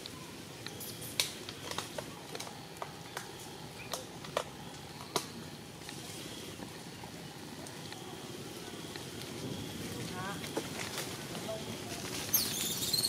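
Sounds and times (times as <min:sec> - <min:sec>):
sharp clicks and snaps: 0:00.0 - 0:06.0.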